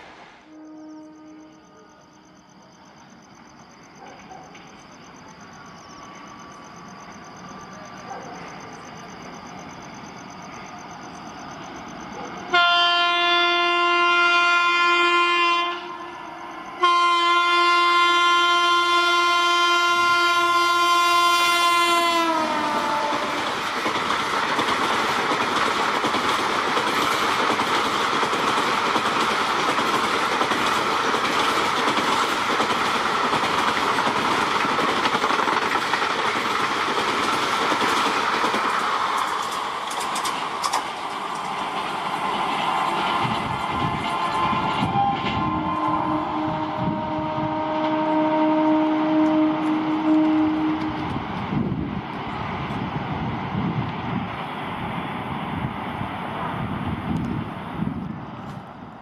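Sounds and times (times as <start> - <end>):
coaches rumbling on rails: 0.0 - 59.0
train horn blasts: 0.4 - 2.4, 12.4 - 23.5, 43.7 - 51.2
locomotive running noise: 20.0 - 54.9.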